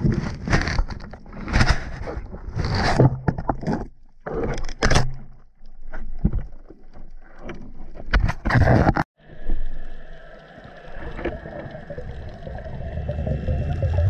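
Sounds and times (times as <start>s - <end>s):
steady underwater hiss: 9.2s - 14.0s
water rushing underwater: 9.2s - 14.0s.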